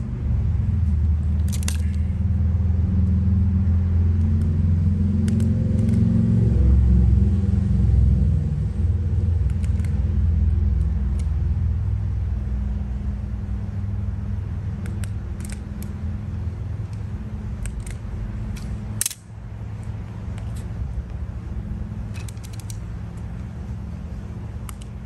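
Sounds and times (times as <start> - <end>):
low engine rumble: 0.0 - 25.0
wire strippers clicking: 1.2 - 2.3, 4.1 - 6.1, 9.3 - 11.5, 14.6 - 21.2, 22.0 - 25.0.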